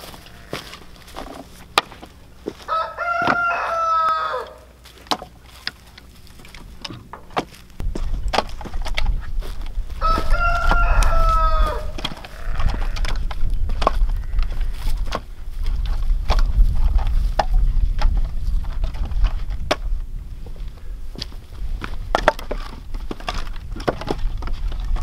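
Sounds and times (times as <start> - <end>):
fowl calling: 0.0 - 1.6, 2.4 - 4.9, 10.0 - 13.0
firewood clunking onto woodpile: 0.6 - 2.6, 4.9 - 9.2, 21.2 - 25.0.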